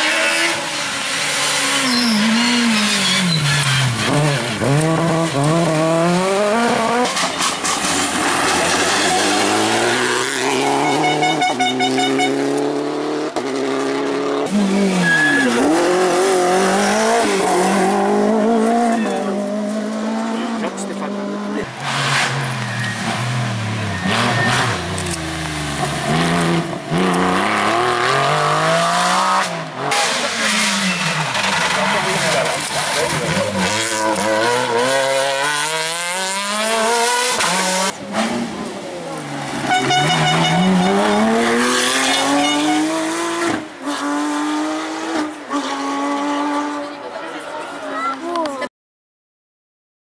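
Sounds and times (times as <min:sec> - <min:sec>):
rally car engines revving: 0:00.0 - 0:48.7.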